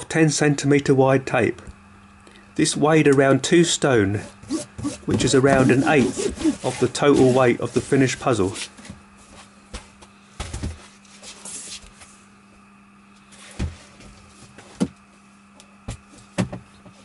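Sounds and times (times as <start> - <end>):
faint steady hum: 0.0 - 17.0
cardboard box scrape: 4.4 - 8.0
cardboard box knocks and thumps: 15.9 - 16.7.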